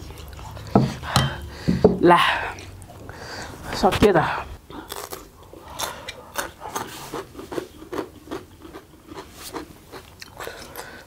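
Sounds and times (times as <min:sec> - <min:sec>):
chewing with wet mouth clicks: 0:00.0 - 0:00.7.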